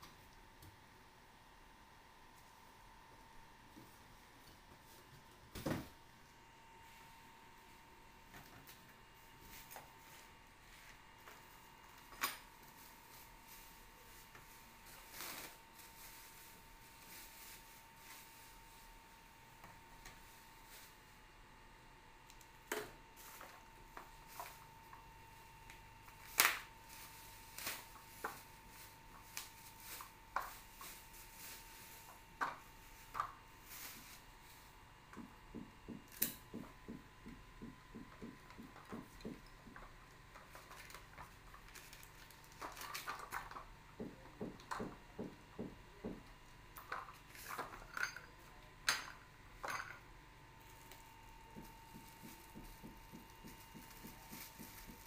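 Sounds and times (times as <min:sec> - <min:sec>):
plastic wrapping rustling: 0:11.4 - 0:19.0, 0:25.6 - 0:34.7, 0:39.0 - 0:43.7, 0:50.6 - 0:55.0
faint high hum: 0:43.6 - 0:55.0.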